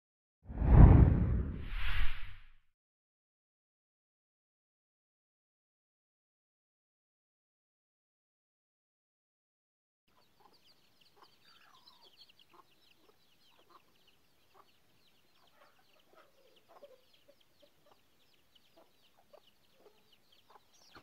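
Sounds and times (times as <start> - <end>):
chicks peeping: 10.1 - 21.0
hen clucking: 10.2 - 18.1.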